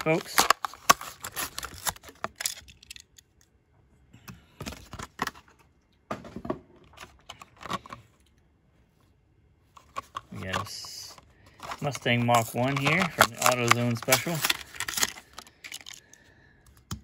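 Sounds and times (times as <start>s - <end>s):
plastic blister pack crinkling: 0.0s - 3.2s, 10.0s - 16.3s.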